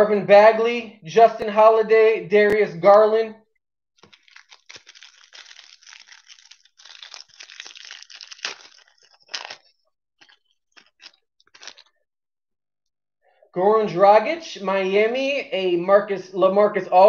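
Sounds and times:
wrapper crinkling and tearing: 0:04.0 - 0:12.0.

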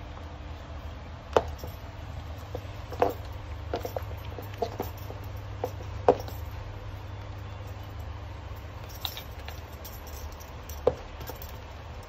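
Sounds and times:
steady low hum: 0:00.0 - 0:12.0
sandals knocking on wooden floor: 0:02.5 - 0:06.4.

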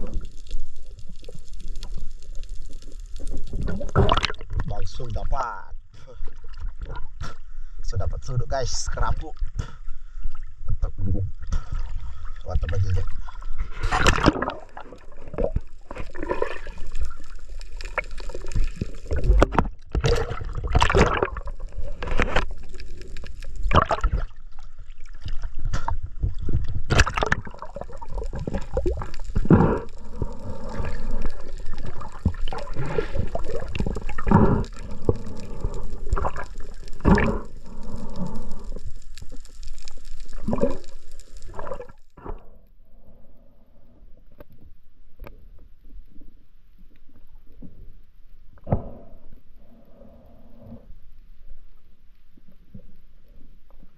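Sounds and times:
water splashes: 0:00.0 - 0:05.5, 0:08.6 - 0:42.4
water sloshing and gurgling: 0:00.0 - 0:43.2.

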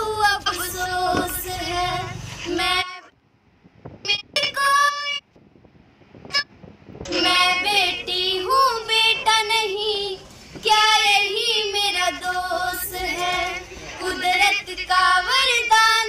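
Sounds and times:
high-pitched voice singing: 0:07.1 - 0:16.0.

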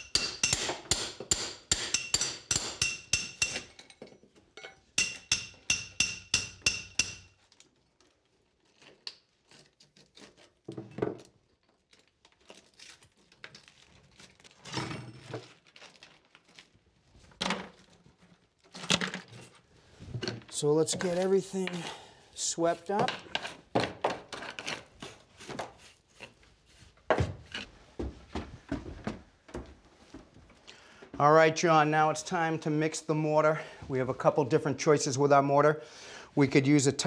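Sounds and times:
hammer striking steel chisel: 0:00.0 - 0:04.0, 0:04.6 - 0:07.3.

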